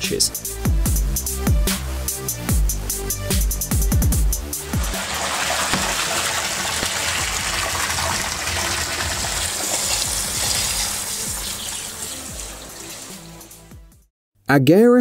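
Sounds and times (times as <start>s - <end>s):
water gushing and splashing: 4.6s - 13.8s.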